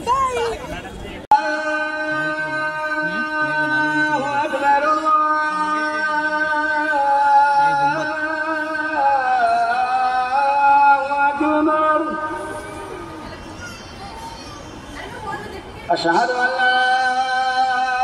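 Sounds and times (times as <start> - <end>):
person singing long notes: 1.3 - 12.7.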